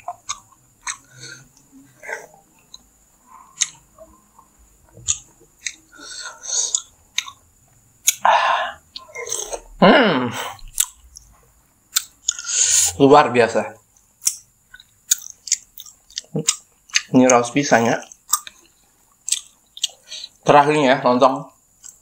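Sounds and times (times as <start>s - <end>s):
sharp mouth clicks: 0.0s - 1.7s, 3.5s - 3.9s, 5.0s - 5.9s, 6.6s - 7.4s, 8.0s - 8.3s, 10.6s - 11.3s, 11.9s - 12.9s, 14.2s - 17.1s, 18.0s - 20.4s
close chewing with wet mouth noises: 0.0s - 9.7s, 10.6s - 11.3s, 11.9s - 12.5s, 13.9s - 20.4s.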